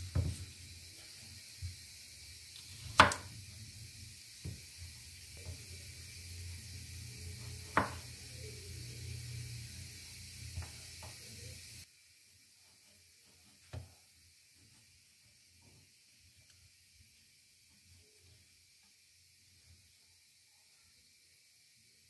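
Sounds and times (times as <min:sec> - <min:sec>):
knife knocking on cutting board: 0:07.6 - 0:08.1.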